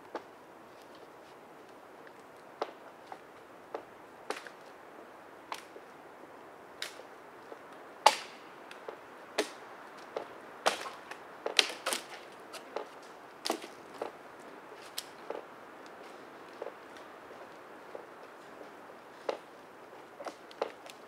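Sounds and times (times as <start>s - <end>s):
dry branches snapping: 2.0s - 4.6s, 5.5s - 5.8s, 6.8s - 14.2s, 14.8s - 18.4s, 20.2s - 21.0s.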